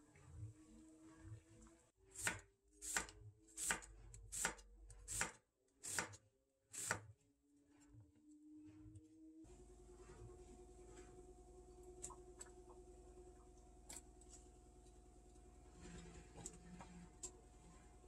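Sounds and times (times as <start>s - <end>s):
knife slicing onion on board: 2.1s - 7.1s.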